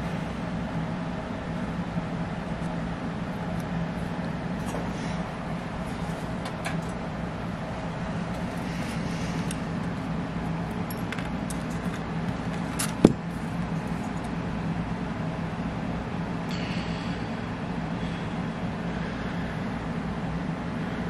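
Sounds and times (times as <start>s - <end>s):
steady low hum: 0.0s - 21.0s
metal parts clinking: 10.7s - 13.1s.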